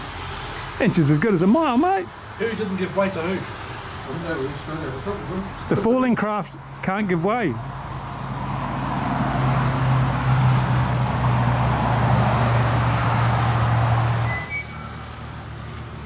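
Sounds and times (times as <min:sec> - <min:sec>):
quadcopter buzzing past: 0:08.2 - 0:16.0.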